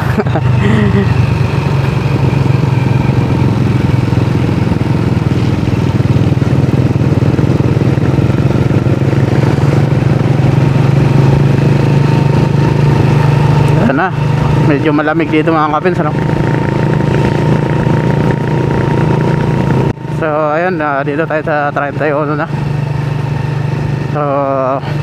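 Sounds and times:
motorcycle engine running: 0.0 - 25.0
road noise: 0.0 - 25.0.

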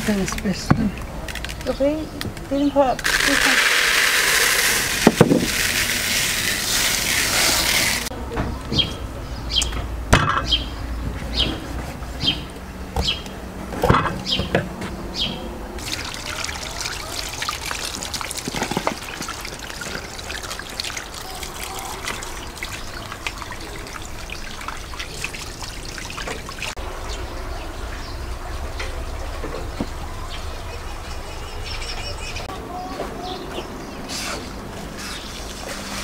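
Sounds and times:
water trickling and splashing: 0.0 - 8.2, 15.8 - 32.4, 34.1 - 36.0.

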